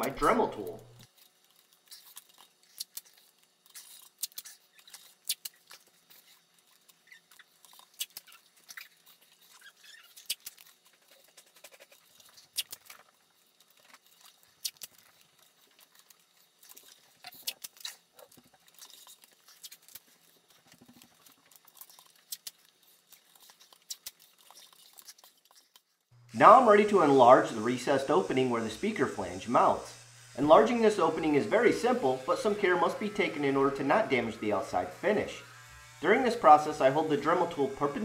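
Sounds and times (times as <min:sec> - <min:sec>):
tape crinkling and crackling: 0:01.0 - 0:26.2.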